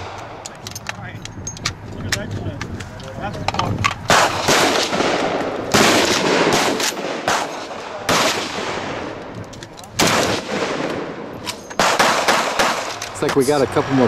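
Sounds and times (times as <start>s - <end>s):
loud gunshots echoing: 4.1s - 9.2s, 10.0s - 13.0s.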